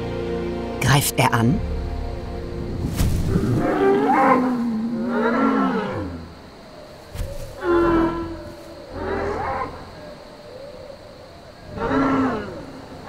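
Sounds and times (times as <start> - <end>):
creature moo-like cries: 3.3 - 6.4, 7.6 - 10.0, 11.6 - 13.0.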